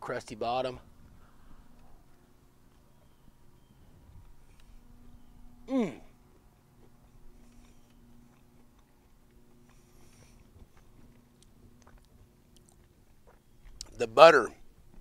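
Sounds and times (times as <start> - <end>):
chewing crusty bread: 6.2 - 14.0.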